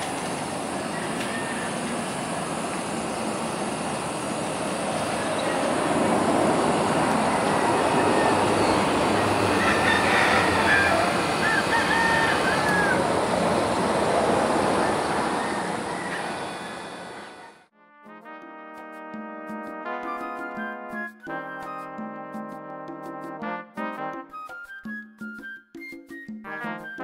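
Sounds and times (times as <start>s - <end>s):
steady rushing noise: 0.0s - 17.7s
roosters crowing: 0.2s - 3.1s, 5.0s - 17.6s.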